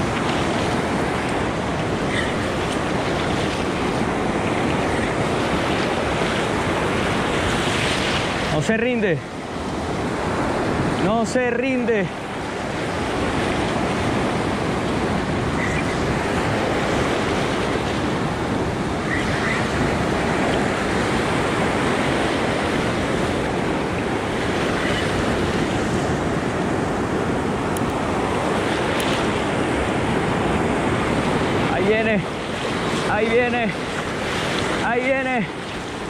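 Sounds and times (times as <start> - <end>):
ocean surf breaking: 0.0 - 36.0
wind buffeting microphone: 12.1 - 36.0.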